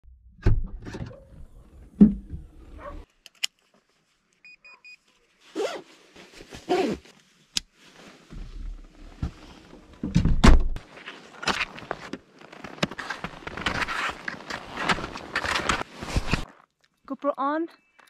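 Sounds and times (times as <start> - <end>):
jacket zipper pulls: 5.5 - 5.8, 6.5 - 7.1.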